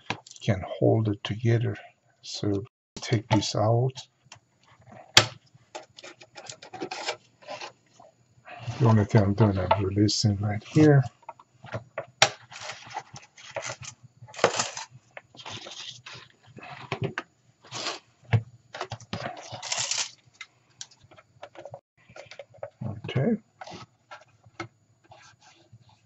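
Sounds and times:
radio cabinet scraping: 0:04.6 - 0:18.1, 0:21.1 - 0:26.0.

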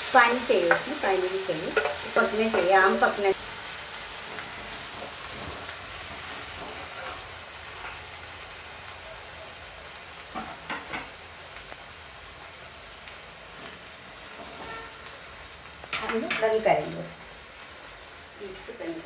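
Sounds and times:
curry sizzling: 0:00.0 - 0:19.0
spatula scraping a pan: 0:00.5 - 0:03.2, 0:13.5 - 0:15.1.

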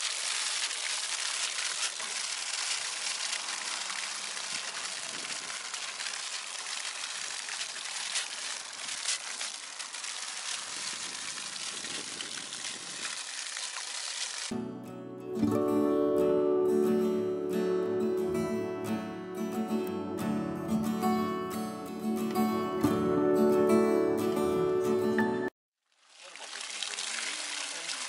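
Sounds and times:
water pouring and splashing on rocks: 0:00.0 - 0:14.5, 0:25.8 - 0:28.0.

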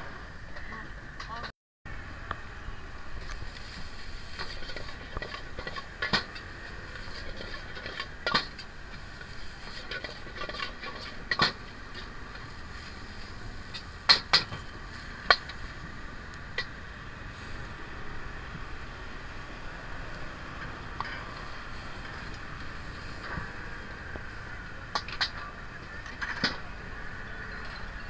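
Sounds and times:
steady frying hiss: 0:01.9 - 0:27.4.

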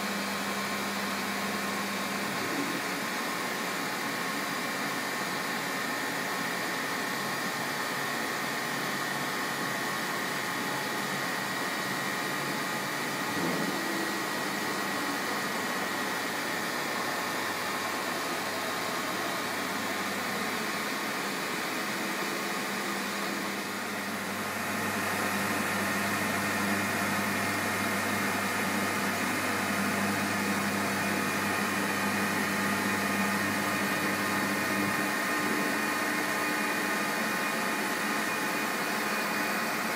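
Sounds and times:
milling machine humming: 0:00.7 - 0:39.9.

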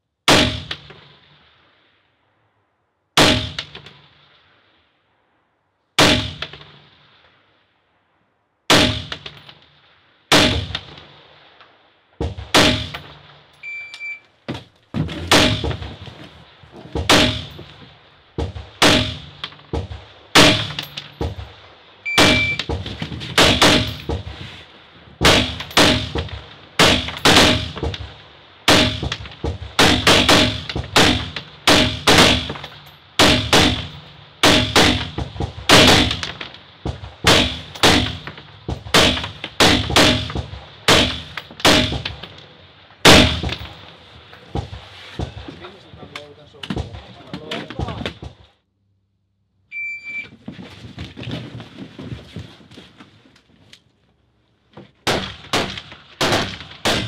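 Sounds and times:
rifle shots: 0:00.3 - 0:01.7, 0:03.2 - 0:04.5, 0:06.0 - 0:07.3, 0:08.7 - 0:11.7, 0:12.3 - 0:13.5, 0:15.3 - 0:24.2, 0:25.2 - 0:44.0, 0:55.0 - 0:57.0.

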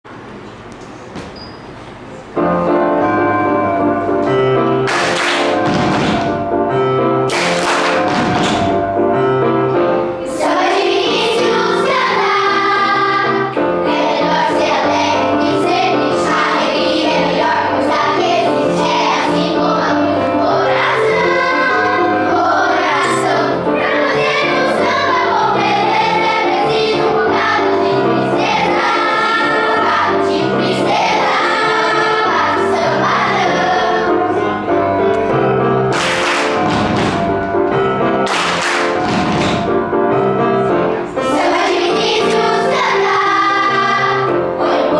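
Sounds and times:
children's choir singing: 0:02.4 - 0:44.9
instrumental accompaniment with bass: 0:02.4 - 0:44.9
hand claps: 0:04.8 - 0:06.4, 0:07.3 - 0:08.8, 0:35.9 - 0:37.4, 0:38.2 - 0:39.7.

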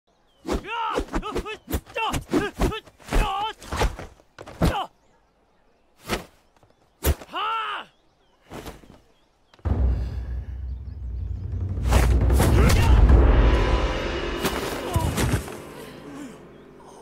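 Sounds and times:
man shouting martial-arts cries: 0:00.6 - 0:03.6, 0:07.3 - 0:07.9.

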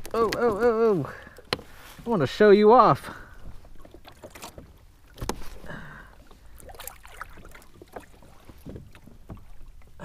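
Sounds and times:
knocks and clicks on plastic kayak: 0:00.0 - 0:01.8, 0:03.4 - 0:05.6.

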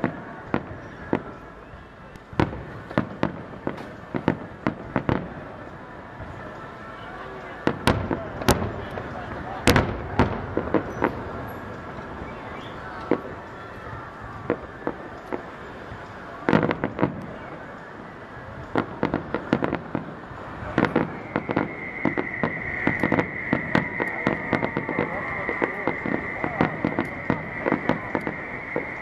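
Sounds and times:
steady high whistle: 0:10.7 - 0:15.4, 0:17.3 - 0:29.0
firework shells bursting: 0:18.7 - 0:29.0.

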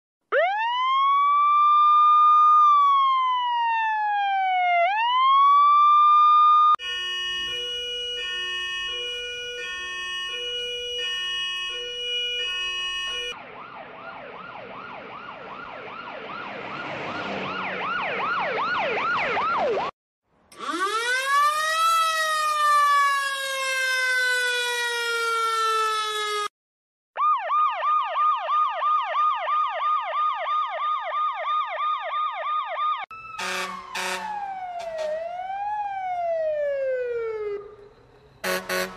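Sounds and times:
electronic siren yelp: 0:00.3 - 0:13.4, 0:20.5 - 0:26.5, 0:27.2 - 0:38.9
fire truck siren winding down: 0:00.3 - 0:19.9, 0:20.5 - 0:26.5, 0:27.2 - 0:38.9
siren yelping: 0:00.3 - 0:19.9, 0:20.5 - 0:26.5, 0:27.2 - 0:38.9
two-tone siren: 0:00.3 - 0:19.9, 0:20.5 - 0:26.5, 0:27.2 - 0:38.9
wailing siren: 0:00.3 - 0:19.9, 0:20.5 - 0:26.5, 0:27.2 - 0:38.9.

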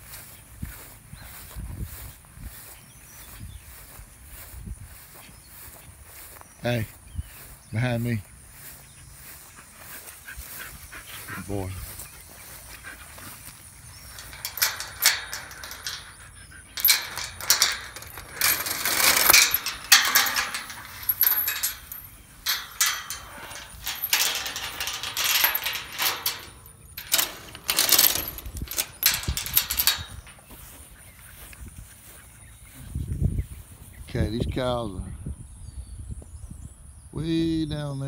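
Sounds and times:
footsteps through long grass: 0:00.0 - 0:14.2, 0:30.4 - 0:34.0
metal chain clinking on gate: 0:11.6 - 0:31.1.

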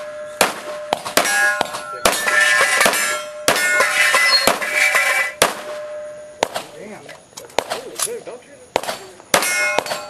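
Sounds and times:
steel targets ringing: 0:00.0 - 0:06.7, 0:08.8 - 0:10.0
pistol shots: 0:00.0 - 0:06.8, 0:07.6 - 0:08.1, 0:08.7 - 0:10.0.

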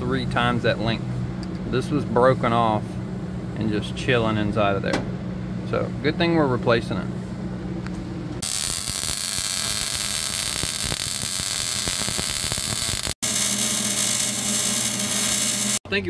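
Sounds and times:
welding arc crackling: 0:08.4 - 0:15.8.

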